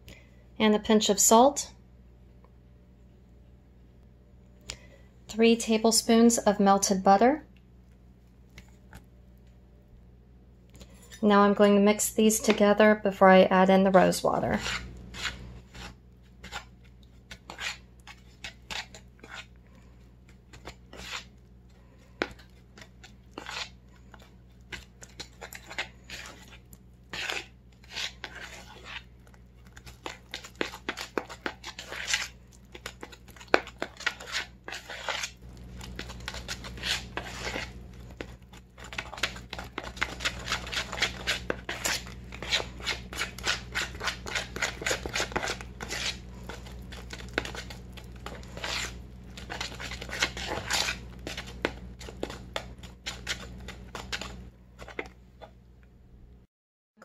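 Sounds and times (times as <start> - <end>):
metal spoon stirring batter in bowl: 13.9 - 55.6.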